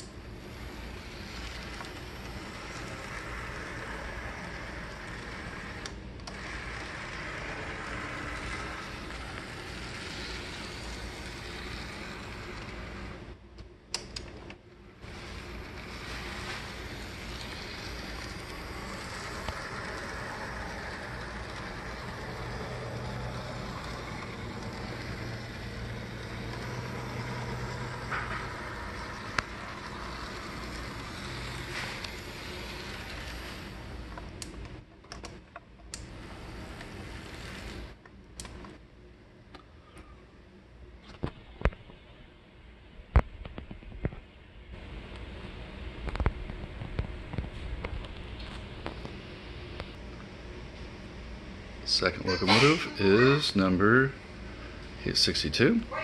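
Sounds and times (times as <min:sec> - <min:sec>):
model train motor whirring: 0:00.0 - 0:13.4, 0:15.0 - 0:34.7, 0:35.9 - 0:38.0
steady low hum: 0:00.0 - 0:56.0
clicks: 0:38.0 - 0:38.8.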